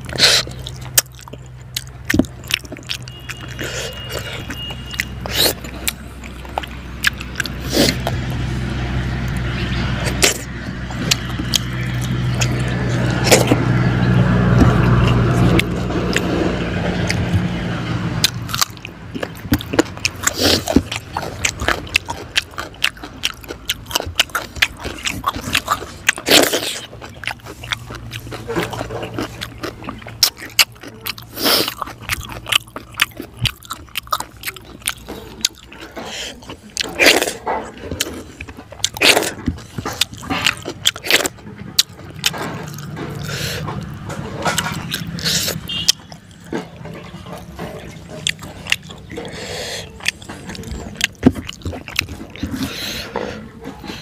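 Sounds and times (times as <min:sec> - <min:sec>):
low engine hum: 0:00.0 - 0:54.0
wet chewing: 0:00.0 - 0:54.0
lip smacks: 0:24.4 - 0:54.0.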